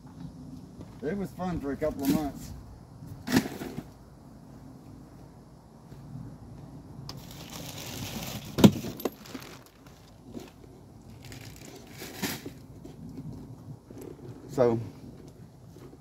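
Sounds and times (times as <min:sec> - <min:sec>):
household items rustling and clattering: 0:07.2 - 0:12.6.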